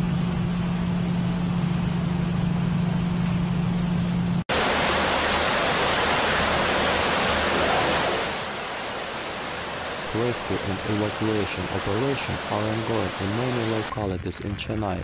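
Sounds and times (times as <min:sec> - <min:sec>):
noisy rush with low hum: 0:00.0 - 0:15.0
floodwater rushing down a street: 0:04.5 - 0:13.9.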